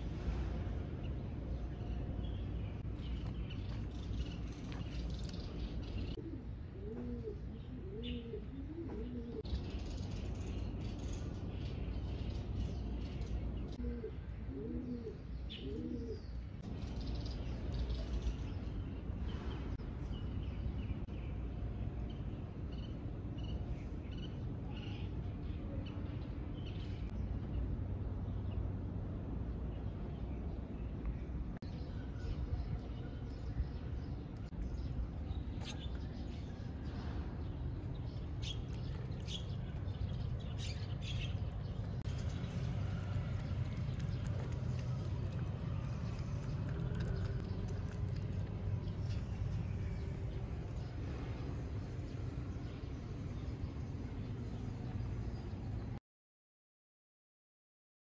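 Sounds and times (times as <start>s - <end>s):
low background rumble: 0.0s - 56.0s
small birds chirping: 1.0s - 28.8s, 29.5s - 55.8s
dove cooing: 6.1s - 9.4s, 13.8s - 16.2s.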